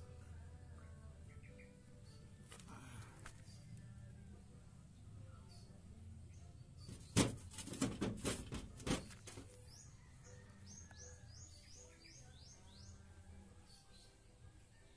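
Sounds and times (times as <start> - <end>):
bird chirping: 1.2 - 2.4, 9.4 - 14.9.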